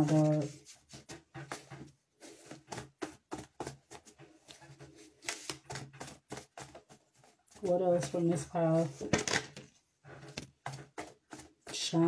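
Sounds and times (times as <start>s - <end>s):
cards being shuffled: 0.0s - 7.3s.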